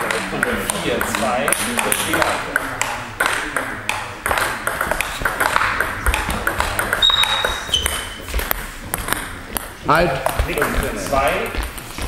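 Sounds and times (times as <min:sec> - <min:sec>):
ping pong ball clicking: 0:00.0 - 0:11.7
high squeaks: 0:06.9 - 0:08.4.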